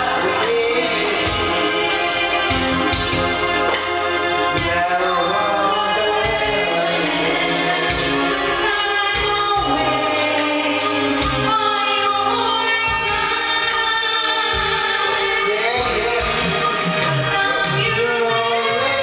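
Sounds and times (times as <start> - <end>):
man singing into a microphone: 0.0 - 2.8, 4.5 - 8.5, 15.1 - 19.0
backing track with steady beat: 0.0 - 19.0.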